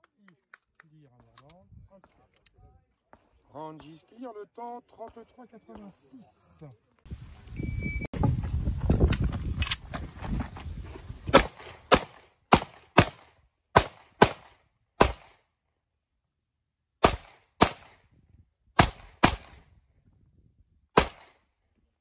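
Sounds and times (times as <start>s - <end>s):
pistol shots: 11.3s - 15.4s, 17.0s - 18.0s, 18.8s - 19.6s, 21.0s - 21.4s.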